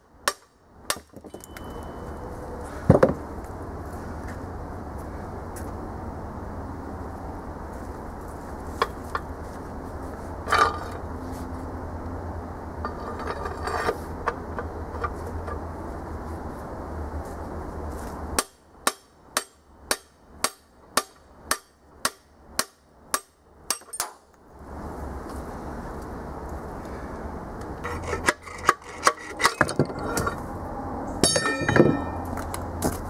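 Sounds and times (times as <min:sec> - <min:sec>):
hammer striking metal bar: 0:18.4 - 0:24.2, 0:31.2 - 0:32.3.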